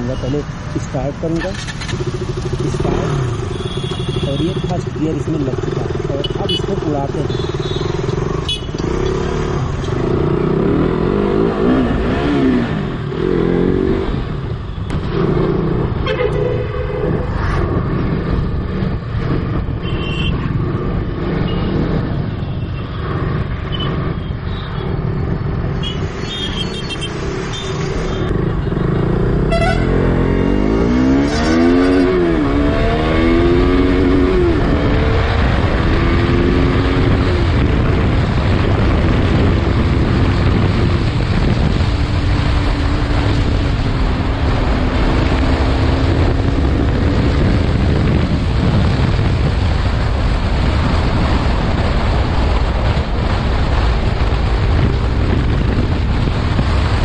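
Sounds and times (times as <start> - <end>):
motorcycle engine revving: 0.0 - 57.0
car horns: 3.5 - 4.8, 6.2 - 9.0, 16.0 - 17.2, 19.8 - 20.4, 25.8 - 28.2, 29.5 - 30.0
wind noise: 9.6 - 28.8, 29.5 - 57.0.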